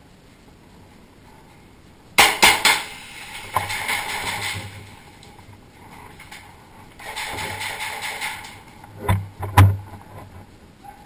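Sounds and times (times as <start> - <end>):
airsoft pistol shots: 2.2 - 4.8.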